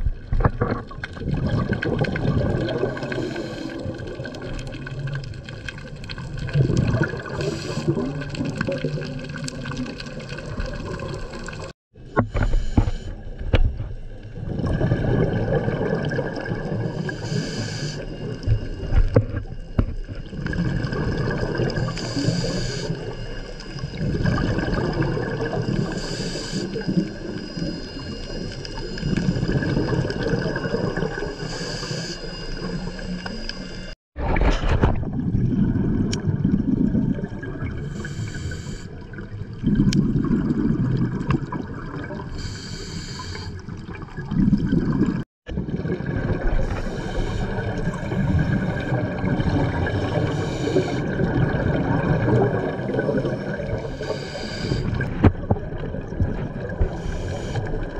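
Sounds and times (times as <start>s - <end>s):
water noise: 0.0s - 57.9s
regulator inhale hiss: 3.1s - 4.0s, 7.4s - 8.0s, 12.3s - 13.2s, 17.0s - 19.1s, 21.9s - 24.0s, 25.8s - 29.8s, 31.3s - 34.0s, 37.9s - 39.0s, 42.3s - 43.7s, 46.6s - 49.0s, 50.2s - 51.1s, 53.8s - 55.1s, 56.9s - 57.9s.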